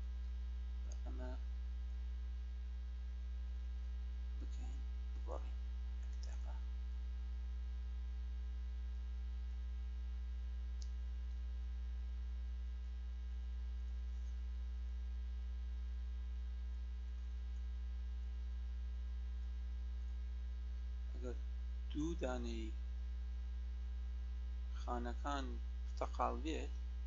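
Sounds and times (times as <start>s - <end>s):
electrical mains hum: 0.0s - 27.0s
faint tick: 10.8s - 11.4s.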